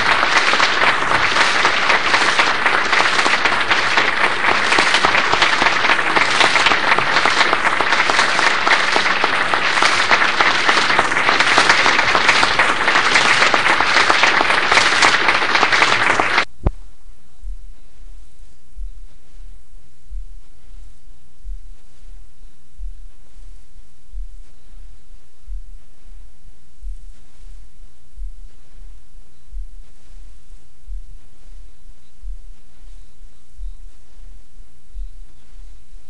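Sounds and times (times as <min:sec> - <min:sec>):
audience applauding: 0:00.0 - 0:16.5
low steady hiss: 0:00.0 - 0:36.0.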